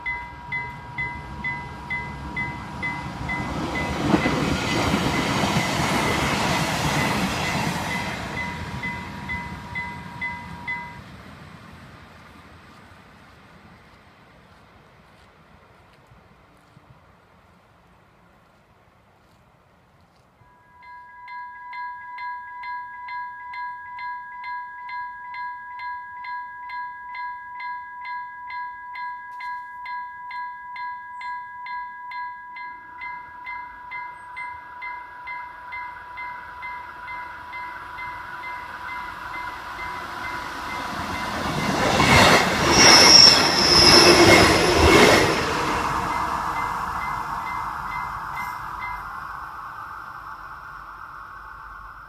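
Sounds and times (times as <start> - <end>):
level-crossing warning bell: 0.0 - 11.2, 20.4 - 52.0
train wheel and rail noise: 0.0 - 52.0
high wheel squeal: 38.0 - 52.0.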